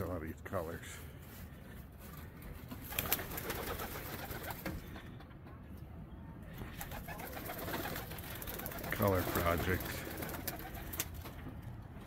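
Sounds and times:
pigeons cooing: 6.7 - 11.0.

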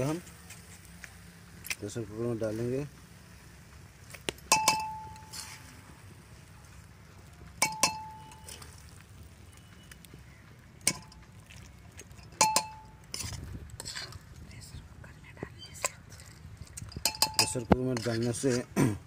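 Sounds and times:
metal spoon clinking on pans: 4.4 - 5.6, 7.6 - 8.8, 12.2 - 14.2, 16.6 - 18.6
spoon scraping inside pan: 4.6 - 5.8, 12.2 - 14.4, 15.8 - 18.6.

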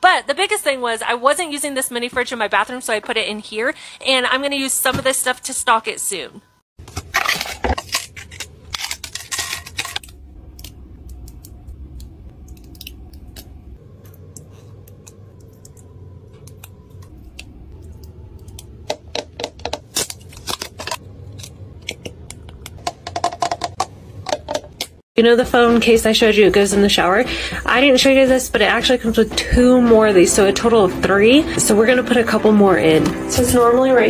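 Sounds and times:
plastic packaging crinkling: 6.8 - 10.8, 19.4 - 21.5
low steady hum: 7.2 - 34.0.

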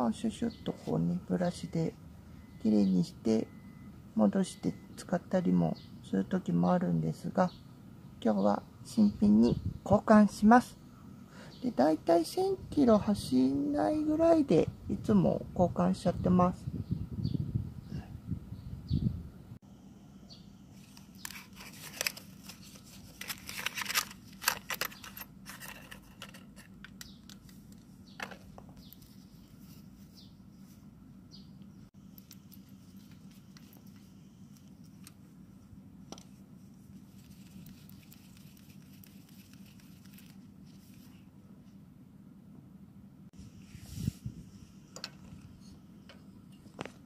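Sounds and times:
faint low hum: 0.0 - 47.0
packaging crinkling and tearing: 21.0 - 25.6, 37.1 - 41.1
small metal parts clicking: 23.2 - 27.4, 32.1 - 35.2.

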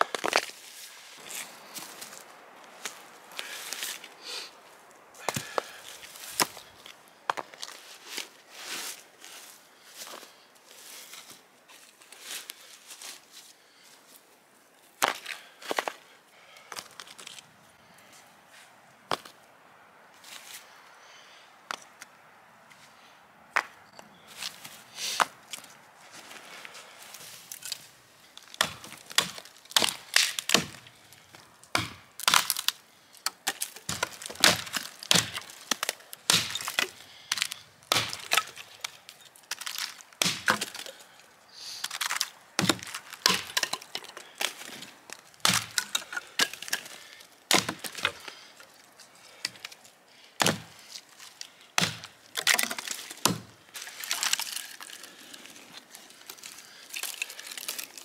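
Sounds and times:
hatchet chopping dry branches: 5.2 - 6.7, 28.4 - 41.2, 41.8 - 48.5, 49.3 - 49.8, 50.4 - 55.0
dry wood cracking: 5.2 - 8.3, 15.0 - 17.5, 26.6 - 58.0.

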